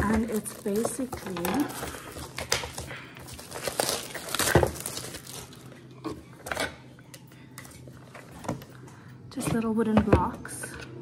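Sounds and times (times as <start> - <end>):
packaging crinkling and rustling: 0.0 - 6.8.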